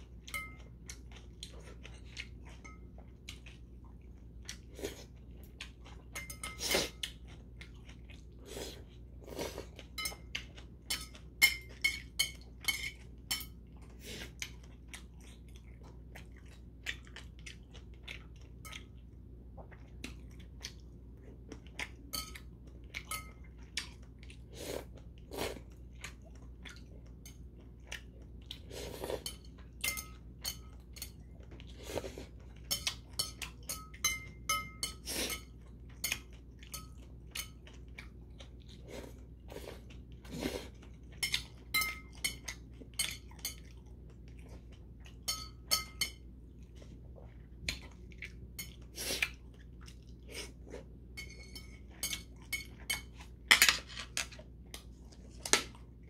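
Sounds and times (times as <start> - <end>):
person chewing food: 0.0 - 56.0
chopsticks clinking on bowl: 0.2 - 0.7, 6.2 - 6.7, 9.8 - 13.6, 29.2 - 31.2, 32.6 - 37.8, 41.2 - 43.8, 45.3 - 46.2, 51.2 - 54.4.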